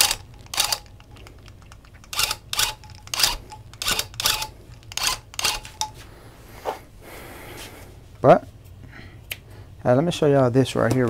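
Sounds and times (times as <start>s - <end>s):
tufting gun buzzing: 0.0s - 5.9s.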